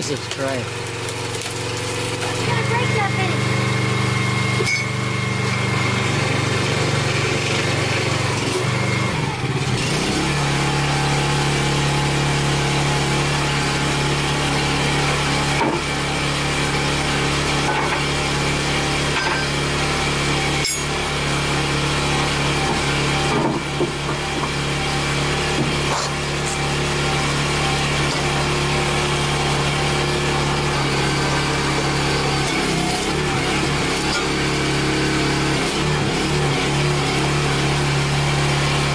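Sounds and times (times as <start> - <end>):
small petrol engine running: 0.0 - 38.9.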